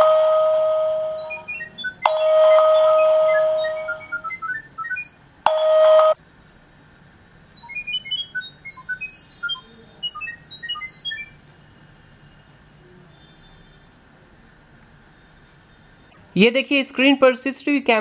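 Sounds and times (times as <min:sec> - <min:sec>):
steady electronic beep: 0:00.0 - 0:06.2, 0:07.6 - 0:11.6
rapid electronic chirping tones: 0:01.0 - 0:05.8, 0:07.6 - 0:11.6.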